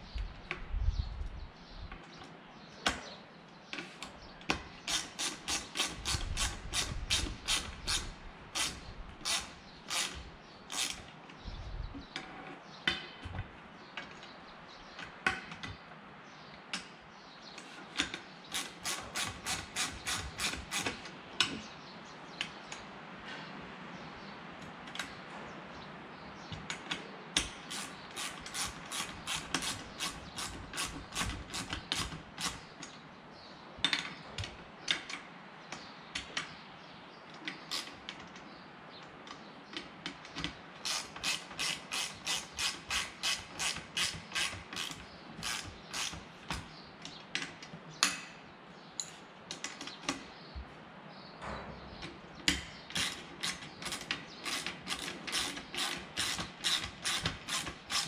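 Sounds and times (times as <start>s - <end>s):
ratchet wrench clicking: 4.9s - 11.0s, 27.7s - 32.6s, 37.7s - 38.0s, 40.8s - 46.6s, 52.9s - 58.0s.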